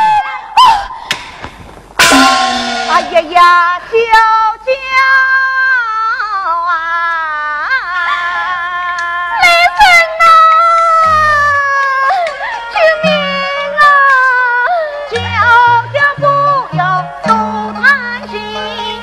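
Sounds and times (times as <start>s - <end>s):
loud percussion crash: 1.2s - 4.1s
woman singing opera: 3.4s - 19.0s.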